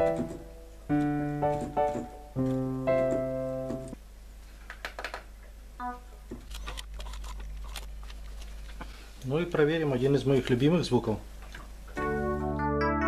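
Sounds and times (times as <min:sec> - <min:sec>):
synthesizer piano chords: 0:00.0 - 0:04.0, 0:12.0 - 0:13.0.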